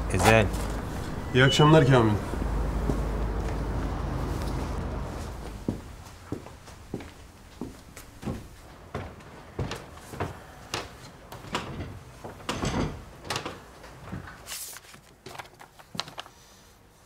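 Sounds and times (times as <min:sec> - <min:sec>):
footsteps on hard floor: 0:02.3 - 0:10.9
paper rustle: 0:14.2 - 0:16.6.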